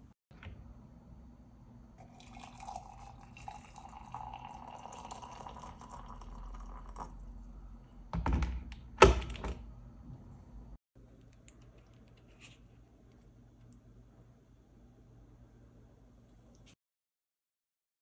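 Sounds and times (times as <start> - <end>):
water poured into ceramic mug: 2.0 - 7.2.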